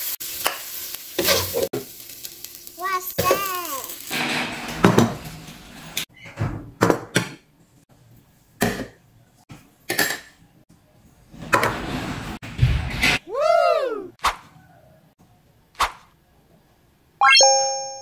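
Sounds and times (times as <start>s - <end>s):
dishes knocking and clinking: 4.2s - 5.3s.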